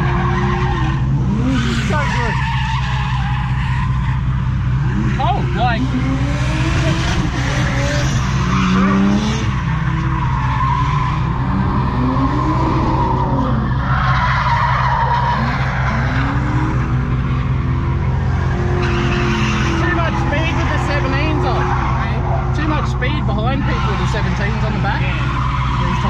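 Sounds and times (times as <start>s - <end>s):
car engine revving: 0.0s - 26.0s
tyres squealing: 17.1s - 26.0s.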